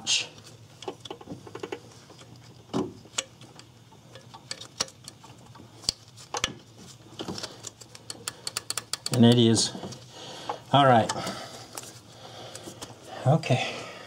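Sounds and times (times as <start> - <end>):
small metal clicks and taps: 3.1 - 6.6, 7.2 - 9.5.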